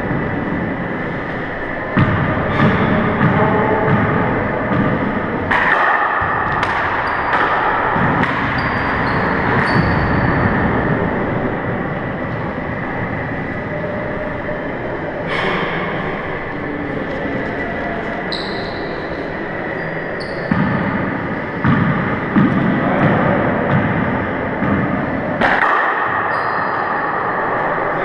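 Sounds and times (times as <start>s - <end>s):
sneakers squeaking on floor: 6.4s - 11.1s, 18.2s - 23.9s, 26.2s - 27.1s.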